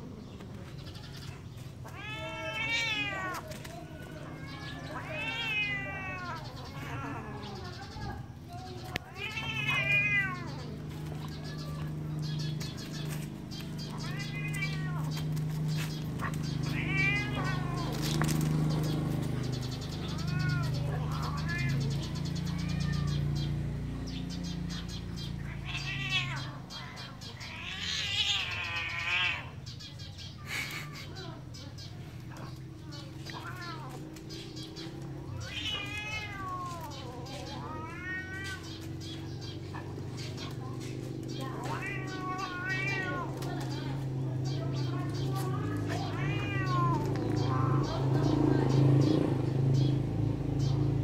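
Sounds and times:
kitten meowing: 1.8 - 3.4, 16.6 - 18.1, 35.3 - 39.0, 41.6 - 43.4, 45.4 - 48.1
cat meowing: 1.8 - 8.0, 8.9 - 13.0, 13.6 - 15.4, 16.2 - 18.3, 20.0 - 23.5, 24.7 - 29.7, 32.7 - 39.2, 41.2 - 48.3
cat yowling: 1.8 - 8.0, 9.0 - 12.4, 13.8 - 15.4, 16.2 - 18.2, 19.9 - 23.4, 24.7 - 29.7, 32.4 - 39.2, 41.3 - 43.9, 44.7 - 48.7.

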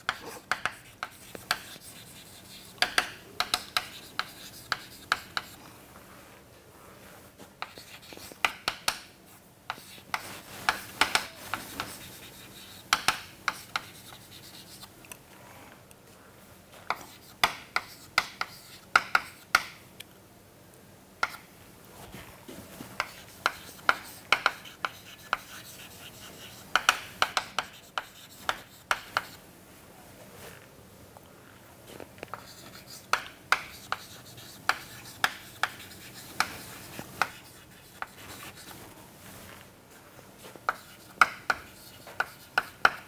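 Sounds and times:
chalk tapping and scratching: 0.0 - 5.6, 7.5 - 14.9, 16.8 - 19.8, 22.7 - 29.4, 32.3 - 39.4, 40.4 - 43.0.

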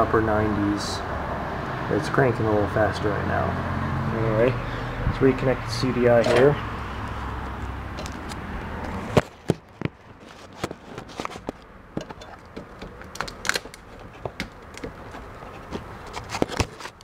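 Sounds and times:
plastic and metal parts clicking: 9.2 - 17.0.

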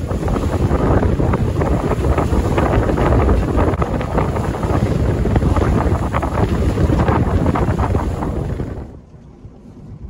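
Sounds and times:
waves rushing: 0.0 - 9.0
low rumble: 0.0 - 10.0
wind buffeting microphone: 0.0 - 10.0.

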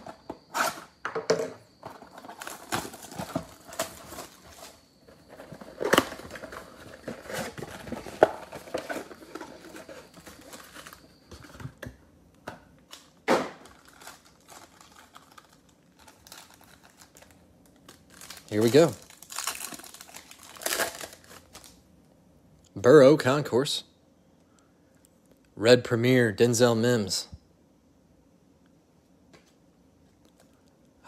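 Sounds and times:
foil packs crackling: 2.0 - 11.1, 13.6 - 21.8
plastic wrap crinkling: 2.0 - 11.1, 13.6 - 21.8.

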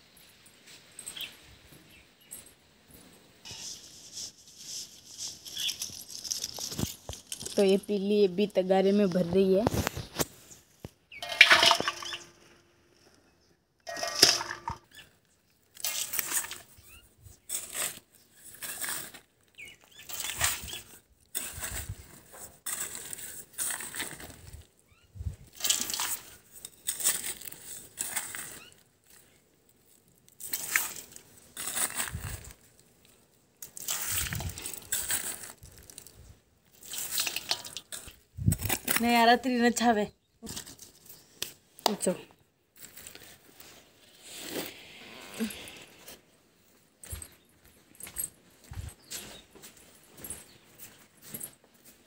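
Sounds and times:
scooping and pouring dry soil: 3.4 - 7.8, 11.1 - 13.1, 13.9 - 15.0, 15.6 - 39.2, 42.8 - 47.4.

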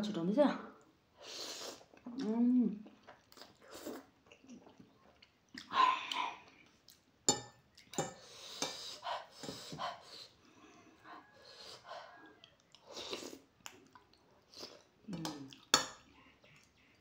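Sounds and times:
noodles slurped and chewed: 1.2 - 7.1, 12.4 - 17.0
metal cutlery clinking on plate: 7.3 - 8.8
hard breaths: 8.0 - 12.2.

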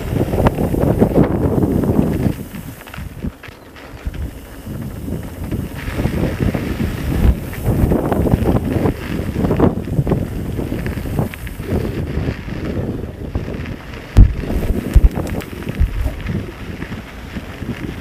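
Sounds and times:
wind buffeting microphone: 0.0 - 18.0.

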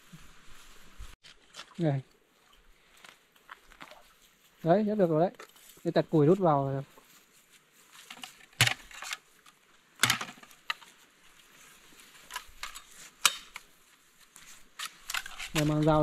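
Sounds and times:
firewood sticks knocking together: 8.0 - 10.9, 12.2 - 13.7, 14.7 - 16.0.

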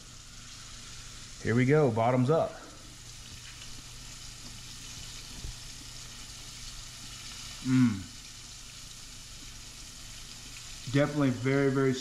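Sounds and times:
hot oil sizzling: 0.0 - 12.0
person humming while chewing: 7.6 - 8.2.

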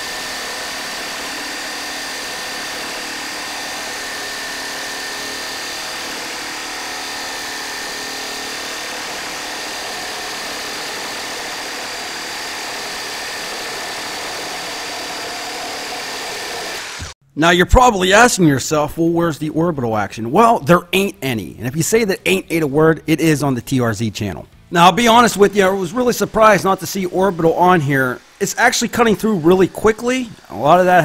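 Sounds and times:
reciprocating saw cutting wood: 0.0 - 17.2, 24.8 - 31.0.

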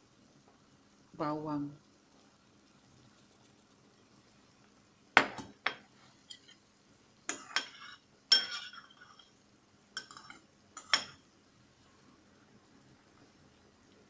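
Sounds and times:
metal utensil clinking on dishes: 7.3 - 9.3, 10.0 - 11.2.

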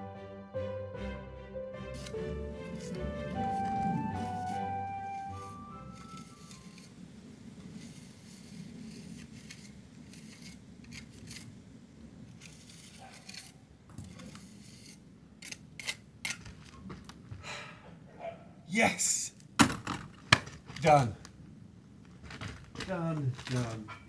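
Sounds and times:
trowel scraping mortar: 2.0 - 7.0, 7.8 - 11.6, 12.3 - 16.6.

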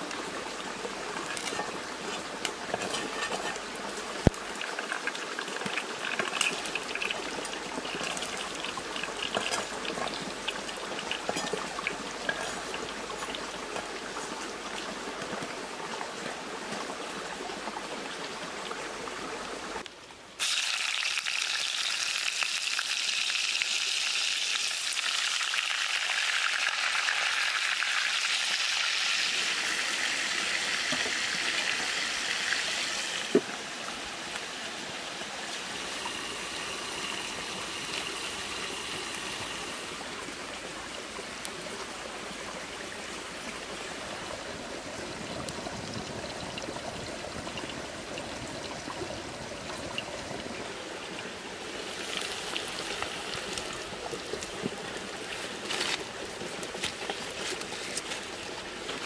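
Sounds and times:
food sizzling in a clay pot: 0.8 - 14.7, 20.4 - 40.0, 51.8 - 59.0.

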